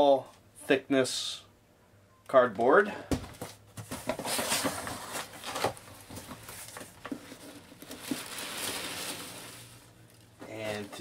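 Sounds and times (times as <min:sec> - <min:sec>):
hands rustling packing peanuts: 0:03.9 - 0:11.0.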